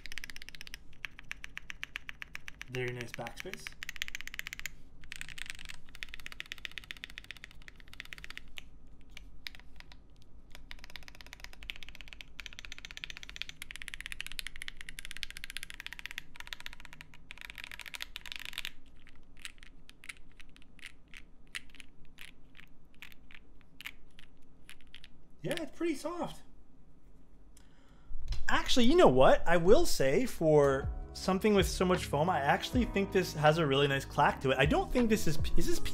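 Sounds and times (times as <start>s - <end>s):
mechanical keyboard typing: 0.0s - 25.7s.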